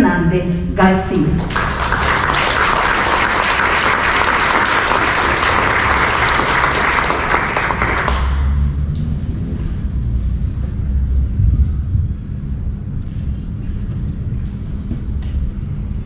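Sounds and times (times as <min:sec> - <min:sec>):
low rumble: 0:00.2 - 0:16.0
audience applauding: 0:01.3 - 0:08.7.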